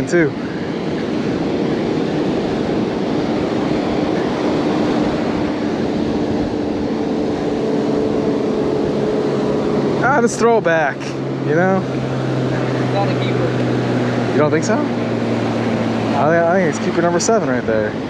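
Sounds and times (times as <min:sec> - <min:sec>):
wind on microphone: 0:00.0 - 0:10.0
ocean surf rushing: 0:00.0 - 0:18.0.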